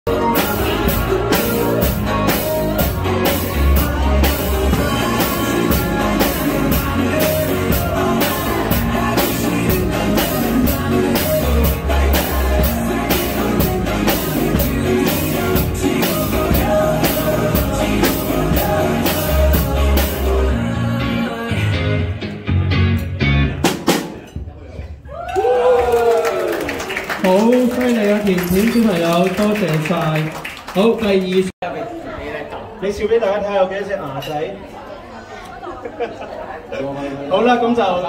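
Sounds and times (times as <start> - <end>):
recorded rock music with singing: 0.0 - 24.4
child playing drum kit: 0.1 - 20.3, 23.6 - 24.3.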